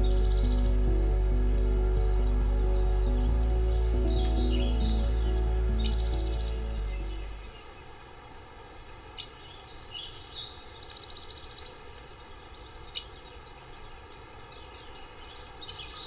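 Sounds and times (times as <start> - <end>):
birds chirping and calling: 0.0 - 7.7
background hiss: 0.0 - 16.0.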